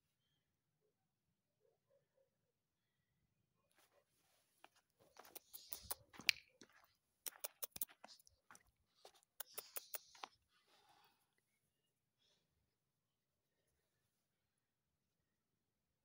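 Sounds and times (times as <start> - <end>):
footsteps crunching on sandy ground: 4.6 - 10.2.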